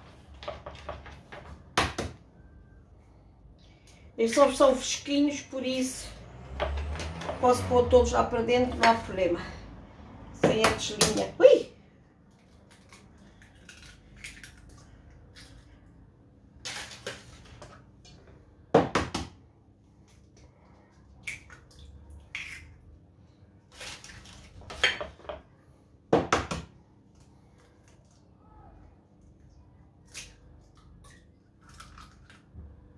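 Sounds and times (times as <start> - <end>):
eggs cracking on metal bowl: 21.2 - 22.8.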